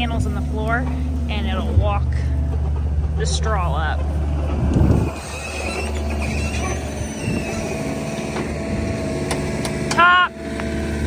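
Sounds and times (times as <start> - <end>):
loader engine running: 0.0 - 11.0
faint high squeaks: 5.0 - 8.6.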